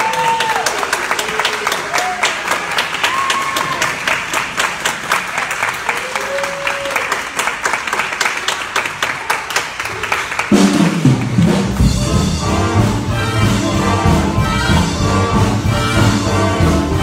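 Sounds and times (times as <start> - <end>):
audience clapping rhythmically: 0.0 - 12.0
jazz big band playing swing: 10.4 - 17.0.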